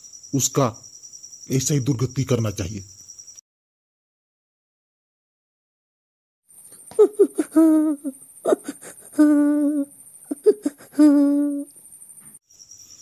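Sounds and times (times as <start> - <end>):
high voice humming cries: 6.8 - 11.8.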